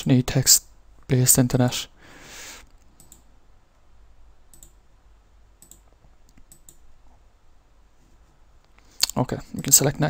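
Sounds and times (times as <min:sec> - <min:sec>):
low steady hum: 0:00.0 - 0:10.0
computer mouse clicks: 0:02.7 - 0:03.3, 0:04.5 - 0:04.8, 0:05.6 - 0:06.8.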